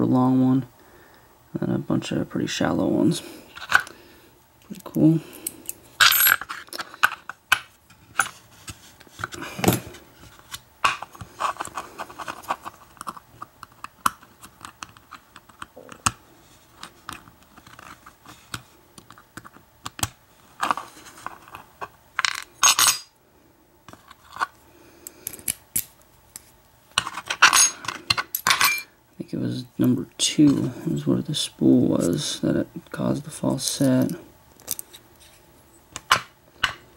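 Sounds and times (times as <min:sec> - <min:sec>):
pins dropping onto metal tray: 0:06.0 - 0:06.4.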